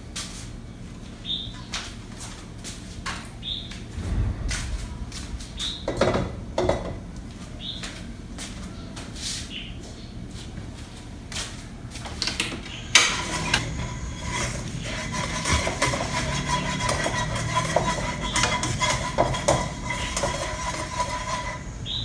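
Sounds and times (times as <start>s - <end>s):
gas burner hum: 12.2s - 22.0s
spatula scraping a wok: 13.0s - 22.0s.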